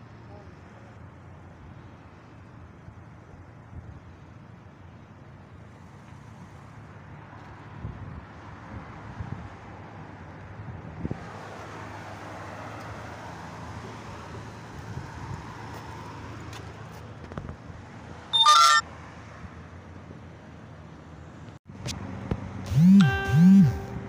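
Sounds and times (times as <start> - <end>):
rushing outdoor background noise: 0.0 - 24.0
brief loud shrill sound: 18.4 - 18.8.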